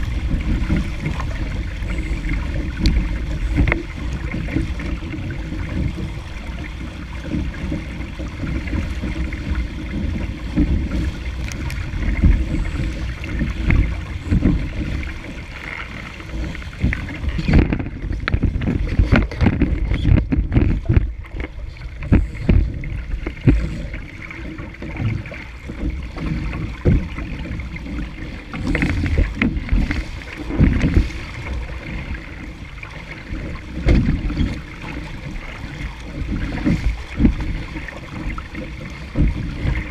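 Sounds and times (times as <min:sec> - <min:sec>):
water rushing against boat hull: 0:00.0 - 0:39.9
wind buffeting microphone: 0:00.0 - 0:39.9.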